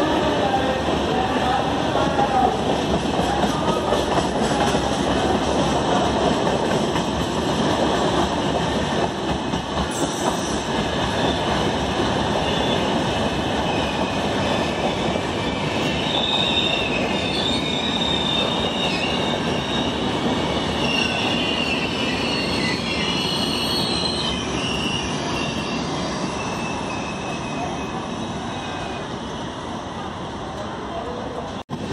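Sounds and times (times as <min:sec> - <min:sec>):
train wheels rumbling on rails: 0:00.0 - 0:31.9
high-pitched wheel squeal: 0:13.7 - 0:29.6.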